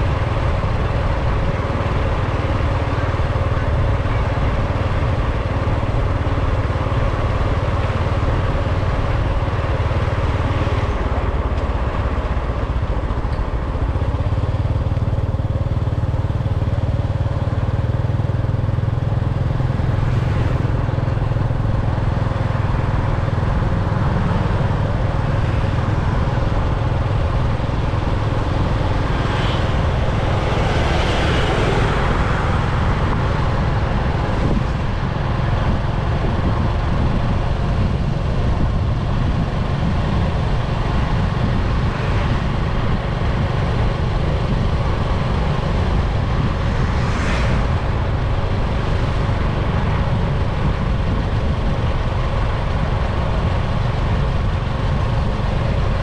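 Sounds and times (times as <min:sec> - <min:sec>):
passing traffic: 0:00.0 - 0:56.0
vehicle road and wind rumble: 0:00.0 - 0:56.0.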